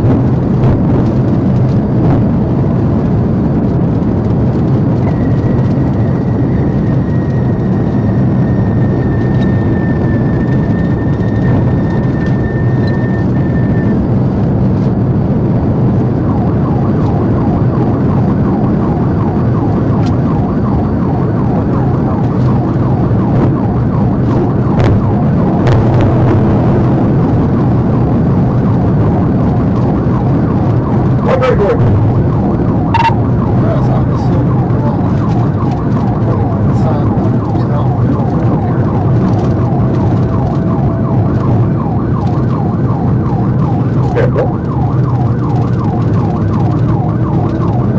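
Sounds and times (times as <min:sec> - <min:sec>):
faint siren wailing: 0:00.0 - 0:47.9
road and tyre noise: 0:00.0 - 0:47.9
wind noise: 0:00.0 - 0:47.9.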